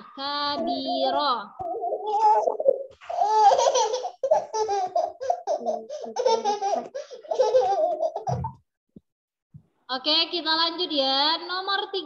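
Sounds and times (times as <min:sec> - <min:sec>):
child laughing: 0:00.6 - 0:08.5.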